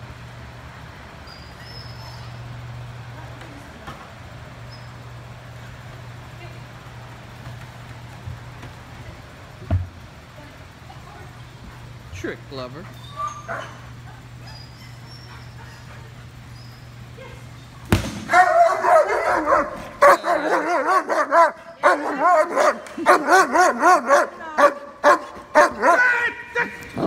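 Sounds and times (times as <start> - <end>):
steady low hum: 0.0 - 27.0
puppy whining and yipping: 13.0 - 16.8.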